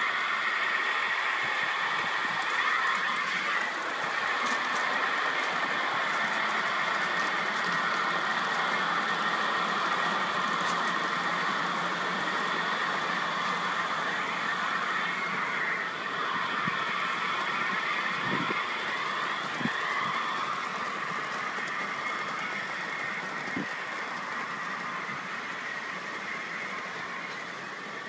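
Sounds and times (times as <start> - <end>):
model train motor whine: 0.0 - 28.0.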